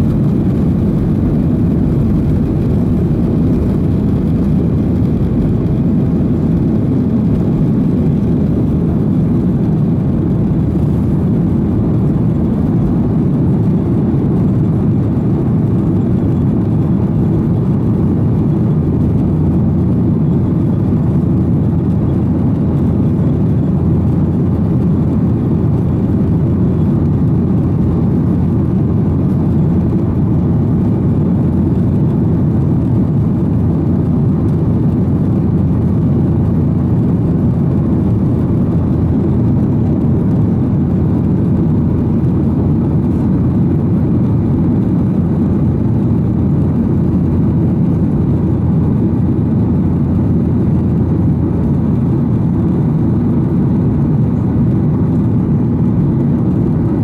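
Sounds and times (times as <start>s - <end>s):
jet engines roaring: 0.0s - 57.0s.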